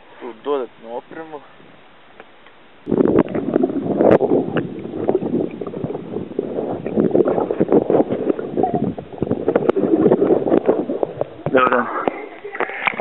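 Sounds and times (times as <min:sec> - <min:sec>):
underwater sloshing and gurgling: 0:03.1 - 0:13.0.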